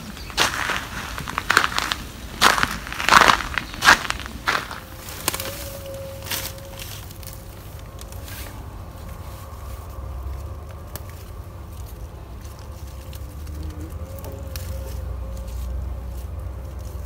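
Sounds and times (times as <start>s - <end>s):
stems snapping: 0.0s - 9.2s, 9.8s - 17.0s
faint hum: 0.0s - 17.0s
leaves rustling: 0.0s - 17.0s
low rumble: 0.0s - 17.0s.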